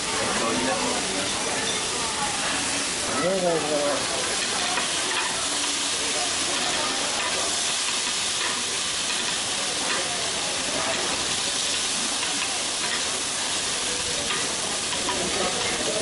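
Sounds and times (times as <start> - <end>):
cabbage sizzling on a griddle: 0.0 - 16.0
spatulas clicking on iron: 14.2 - 15.8.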